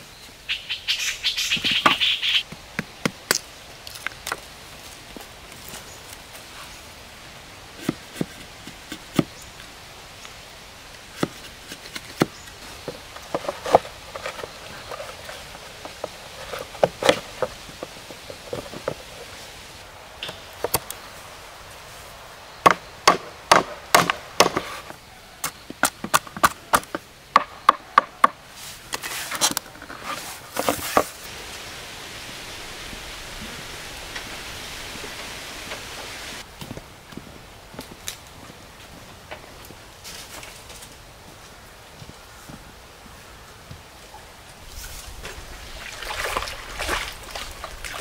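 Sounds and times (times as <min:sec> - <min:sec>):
blade chopping wood: 0:22.6 - 0:28.4.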